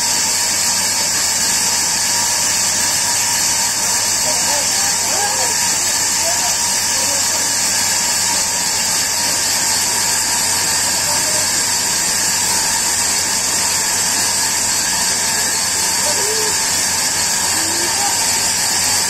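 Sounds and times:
loud steady hiss: 0.0 - 19.0
faint voices: 4.1 - 12.0, 15.9 - 19.0.

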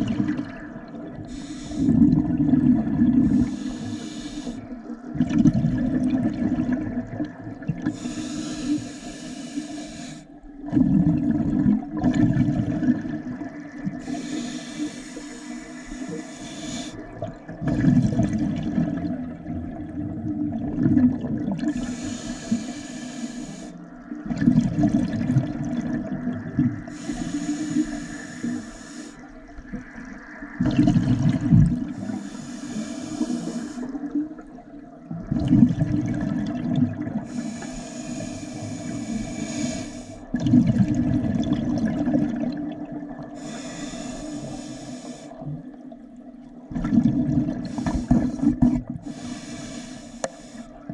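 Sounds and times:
exhaled bubbles rushing: 0.0 - 3.7, 4.7 - 8.0, 10.6 - 14.1, 17.0 - 21.9, 24.0 - 26.9, 29.6 - 32.2, 33.9 - 37.3, 40.2 - 43.4, 46.6 - 49.0
regulator inhalation hiss: 1.3 - 2.0, 3.4 - 4.6, 7.9 - 10.4, 14.0 - 17.1, 21.8 - 23.9, 26.9 - 29.3, 32.0 - 34.0, 37.3 - 40.3, 43.3 - 45.4, 47.6 - 50.9.

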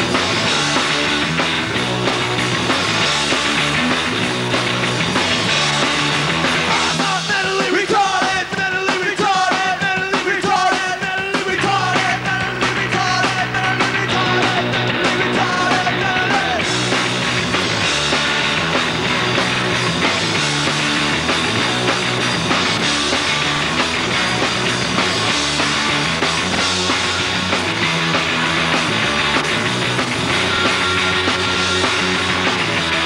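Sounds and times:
pop-punk band playing live: 0.0 - 33.0
person singing: 6.7 - 16.7.

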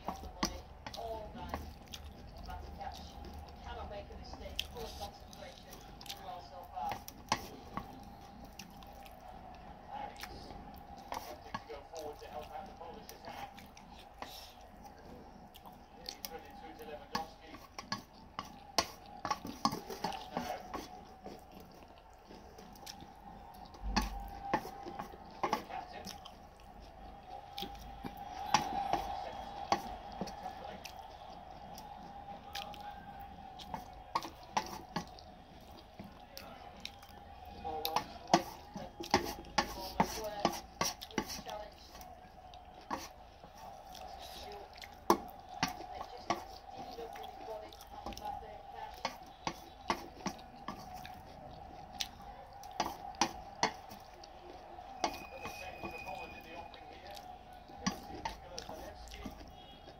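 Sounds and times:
chewing and mouth sounds: 0.0 - 59.9
chopsticks clicking on steel plate: 52.0 - 54.0, 54.9 - 56.3.

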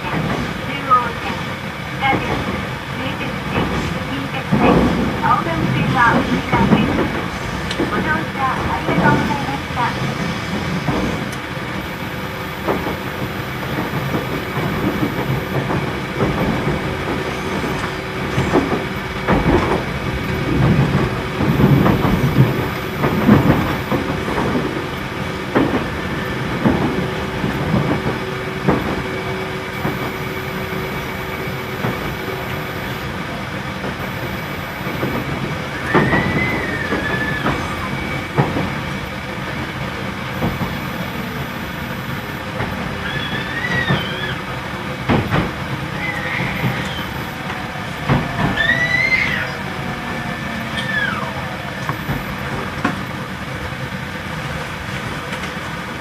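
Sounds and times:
steady train hum: 0.0 - 56.0
train wheels knocking over rail joints: 0.0 - 56.0
high squeal: 34.0 - 38.4, 40.4 - 44.6, 45.9 - 52.5.

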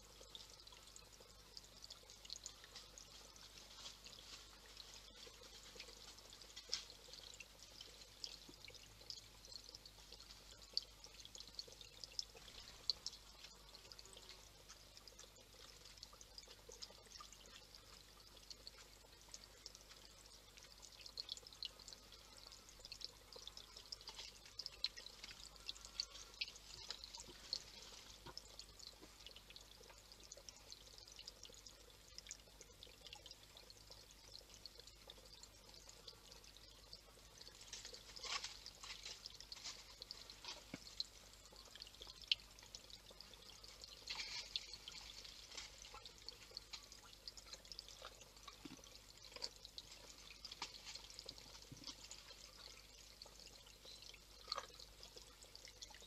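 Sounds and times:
fountain trickling and splashing: 0.0 - 56.0
water drips: 0.0 - 56.0.

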